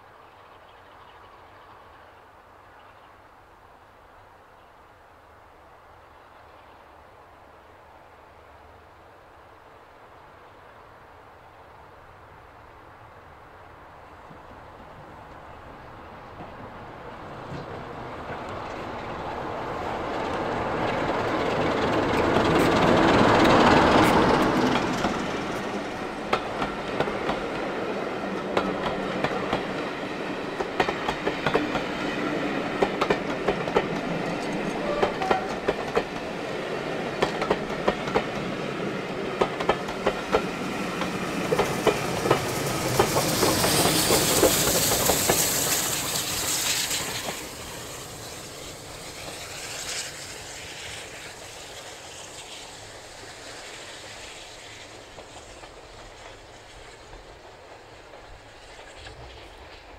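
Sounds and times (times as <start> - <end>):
diesel locomotive engine: 13.4 - 59.9
train wheels clickety-clack: 16.2 - 59.9
steam hissing: 18.4 - 59.9.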